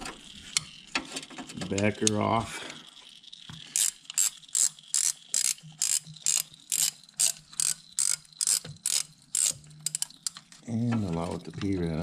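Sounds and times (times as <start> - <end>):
socket ratchet clicking: 3.7 - 10.4.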